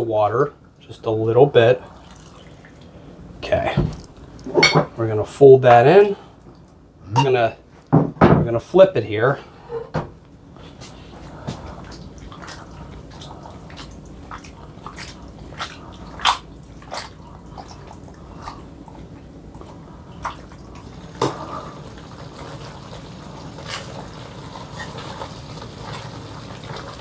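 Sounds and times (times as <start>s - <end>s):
wet squelches of pasta in sauce: 10.6s - 27.0s.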